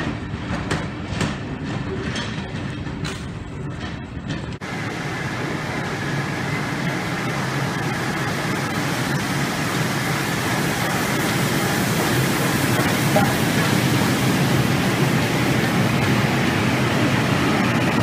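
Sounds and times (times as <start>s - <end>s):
steam locomotive hissing: 4.6s - 18.0s.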